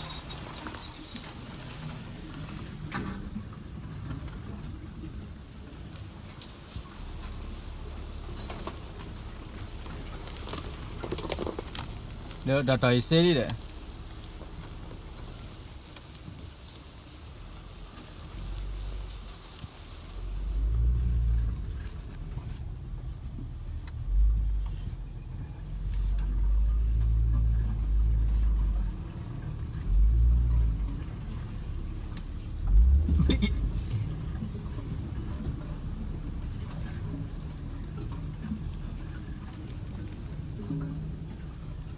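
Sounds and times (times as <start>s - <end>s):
vehicle rumbling over rough track: 0.0s - 41.9s.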